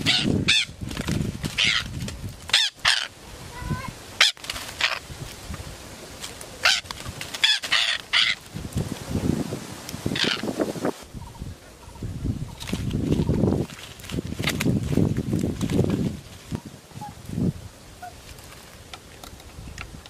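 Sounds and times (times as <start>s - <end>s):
parakeet squawking: 0.0s - 0.7s, 1.6s - 1.8s, 2.5s - 3.1s, 6.6s - 8.4s, 10.1s - 10.5s
rustling: 0.0s - 11.0s, 12.4s - 20.0s
wing flapping: 0.0s - 20.0s.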